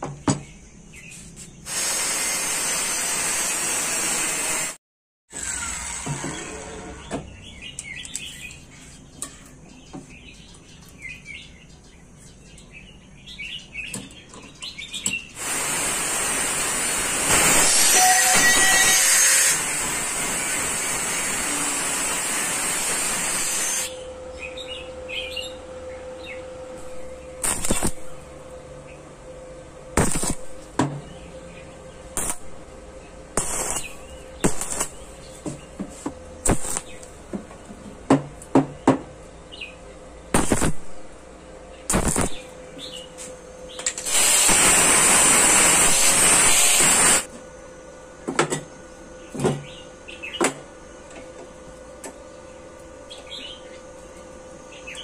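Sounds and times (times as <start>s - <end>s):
angle grinder cutting steel: 1.7s - 7.1s, 15.4s - 24.0s, 44.0s - 47.3s
arc welding cracks: 15.4s - 24.0s, 26.8s - 28.2s, 30.0s - 30.7s, 32.2s - 32.6s, 33.4s - 35.2s, 36.4s - 37.2s, 40.4s - 41.0s, 41.9s - 42.6s, 43.8s - 47.3s.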